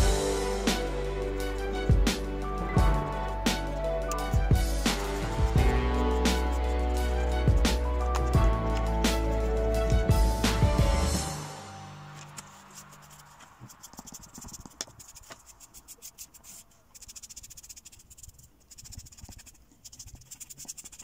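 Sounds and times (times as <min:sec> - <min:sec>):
background music: 0:00.0 - 0:13.6
pencil scratching on paper: 0:04.8 - 0:10.6, 0:12.2 - 0:21.0.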